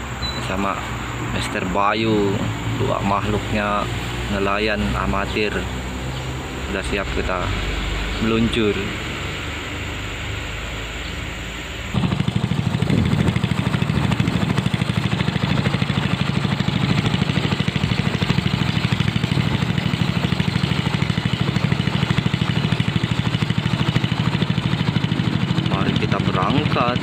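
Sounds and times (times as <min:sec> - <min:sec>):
steady background noise: 0:00.0 - 0:12.2
boat engine putter: 0:00.0 - 0:27.0.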